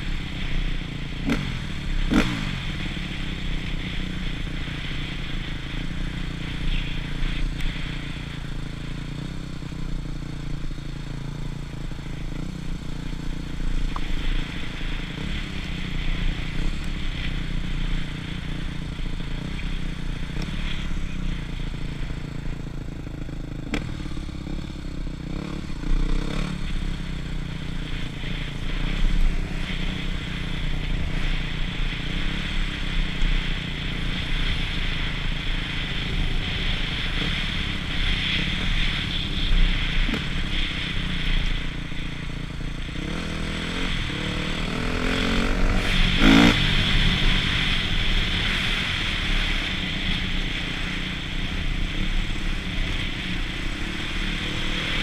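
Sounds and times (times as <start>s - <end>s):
motocross engine running under load: 43.0s - 49.6s.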